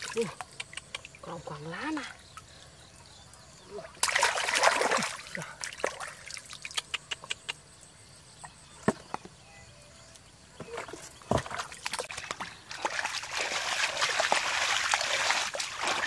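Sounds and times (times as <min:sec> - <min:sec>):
water dripping: 0:00.0 - 0:07.6
hands splashing in muddy water: 0:04.0 - 0:06.8, 0:10.7 - 0:16.0.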